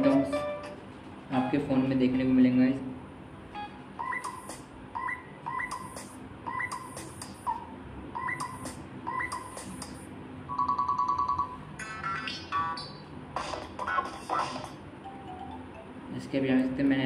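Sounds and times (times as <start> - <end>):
ringtone of rapid even pulses: 3.6 - 7.0, 8.2 - 9.8, 10.5 - 13.0, 15.0 - 15.9.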